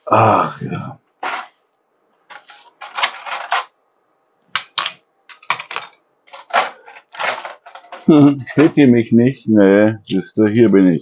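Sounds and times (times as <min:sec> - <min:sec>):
dishes and cutlery clattering: 0:04.6 - 0:08.8.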